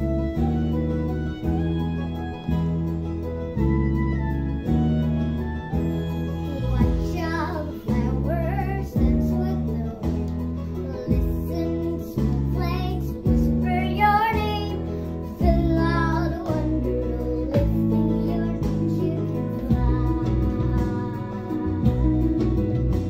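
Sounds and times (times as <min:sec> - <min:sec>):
musical accompaniment: 0:00.0 - 0:23.0
girl singing slow melody: 0:05.6 - 0:23.0.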